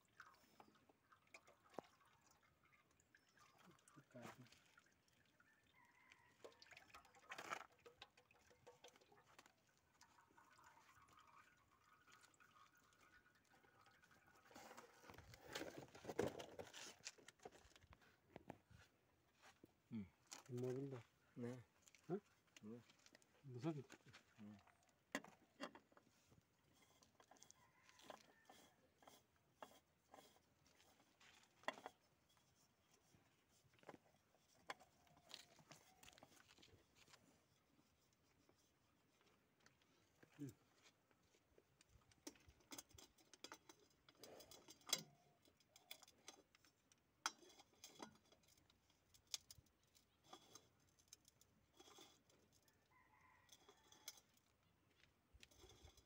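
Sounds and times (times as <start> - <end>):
oil dripping into metal basin: 0.0 - 15.2, 41.6 - 56.0
oil filter clicks and rubbing: 3.4 - 18.7, 21.8 - 56.0.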